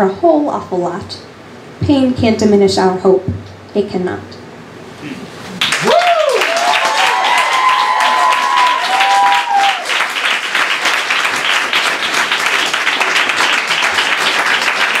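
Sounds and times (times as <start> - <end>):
audience cheering: 5.6 - 15.0
audience clapping: 5.6 - 15.0.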